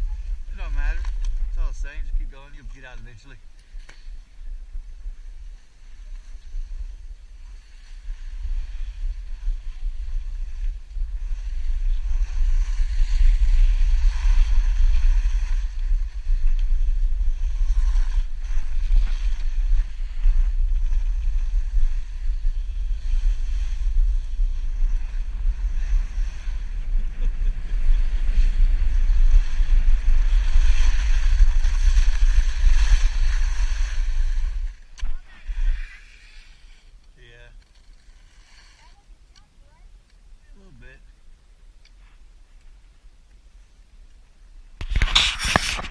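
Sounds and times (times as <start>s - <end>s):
wind buffeting microphone: 0.0s - 36.1s
skis sliding on snow: 0.0s - 37.0s, 37.6s - 39.2s, 44.8s - 45.9s.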